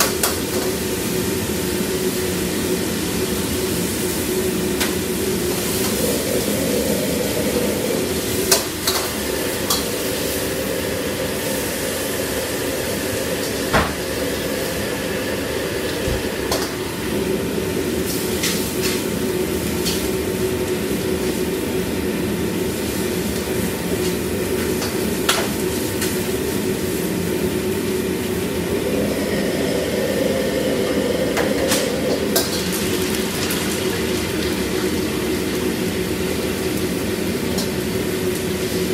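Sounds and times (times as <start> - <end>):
roar of gas burners: 0.0 - 22.4, 26.1 - 33.2
food frying in woks: 0.0 - 38.9.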